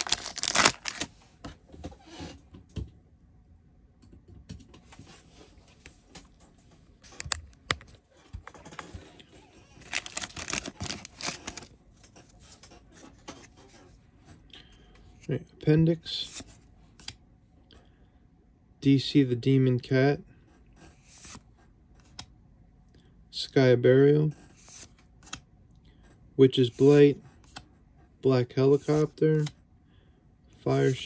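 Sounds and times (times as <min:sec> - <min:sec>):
cards clicking and rustling: 0:00.0 - 0:01.1, 0:09.8 - 0:12.1, 0:28.8 - 0:29.6
foil wrapper crinkling: 0:00.0 - 0:01.1, 0:09.8 - 0:11.7.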